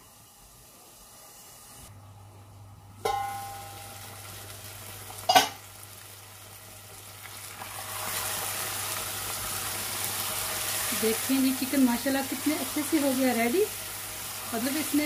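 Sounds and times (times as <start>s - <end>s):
metal pot lid clanking: 3.0s - 3.7s, 5.3s - 5.6s
food sizzling in oil: 3.1s - 15.0s.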